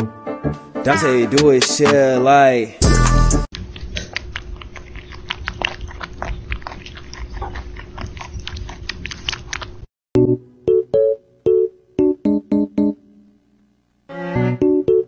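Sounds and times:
piano notes: 10.2 - 13.4, 14.1 - 15.0.

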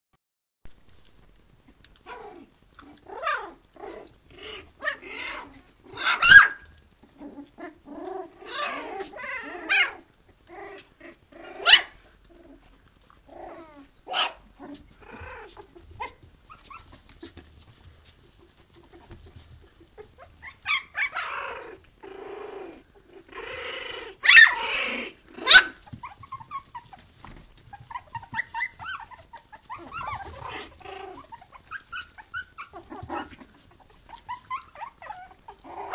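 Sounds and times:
puppy yelps: 2.1 - 6.8, 8.4 - 10.1, 11.4 - 12.1, 13.5 - 17.4, 20.0 - 21.8, 23.4 - 35.9
puppies yipping: 4.4 - 10.1, 10.7 - 12.1, 13.4 - 21.8, 23.0 - 35.9.

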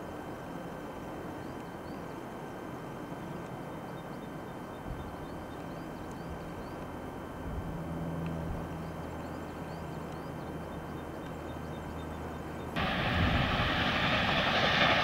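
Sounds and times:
small birds chirping: 3.6 - 7.0, 8.7 - 12.8
distant steam train rumble: 12.8 - 15.0.

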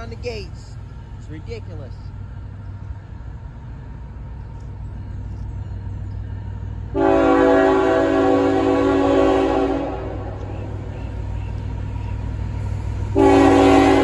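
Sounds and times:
low steady rumble: 0.0 - 14.0
train air horn blast: 6.9 - 11.6, 13.1 - 14.0.

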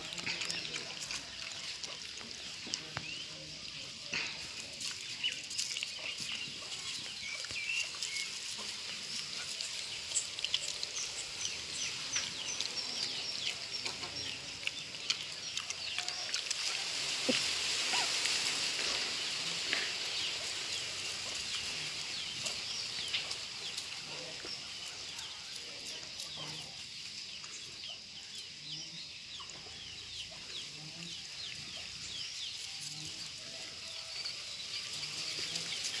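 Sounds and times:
dog chewing among dry leaves: 0.0 - 3.8, 4.4 - 19.0
small birds chirping: 0.0 - 36.0
steady high hiss: 16.4 - 29.3.

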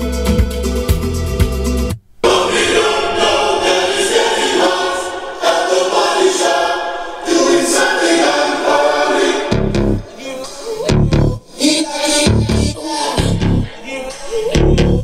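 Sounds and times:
choral singing through car speakers: 2.2 - 14.6.

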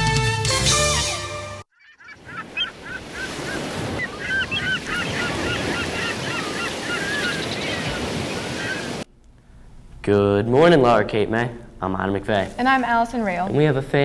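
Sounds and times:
geese honking: 1.7 - 9.0.

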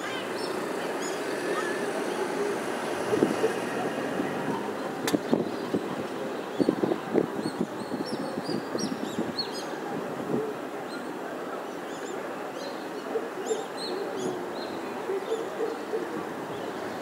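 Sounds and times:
birds chirping: 0.0 - 9.8
distant city traffic hum: 0.0 - 17.0.

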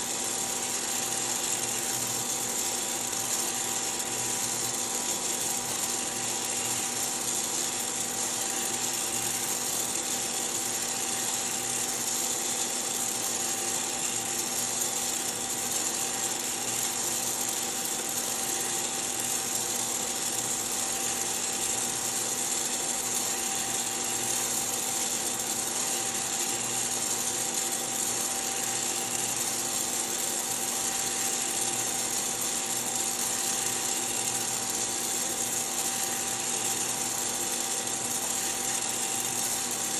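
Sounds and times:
coffee roaster fan and motor hum: 0.0 - 39.9.

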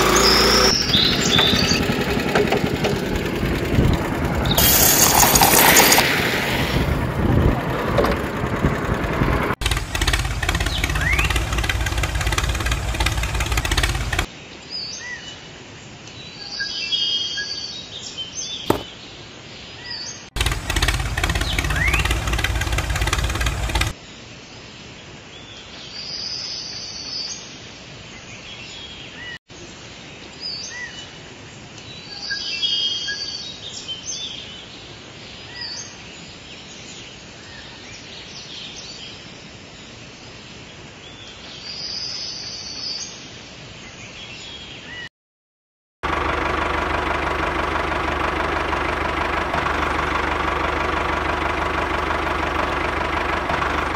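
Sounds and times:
birds chirping: 0.0 - 6.0, 7.2 - 15.2, 18.4 - 23.9
loud motor running: 0.0 - 14.3, 18.7 - 18.9, 20.4 - 24.0, 46.0 - 53.9.

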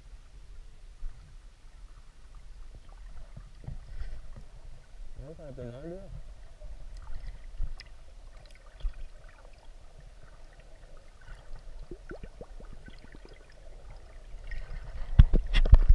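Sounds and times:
water gurgling and bubbling: 6.2 - 15.9.

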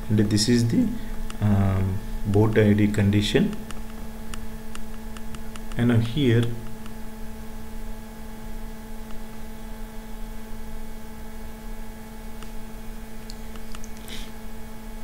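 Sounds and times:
electrical hum: 0.0 - 15.0.

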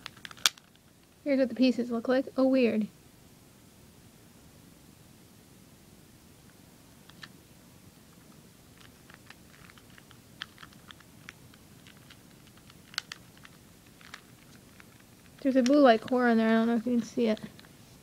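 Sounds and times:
plastic puzzle pieces clicking: 0.0 - 0.8, 8.8 - 16.2.

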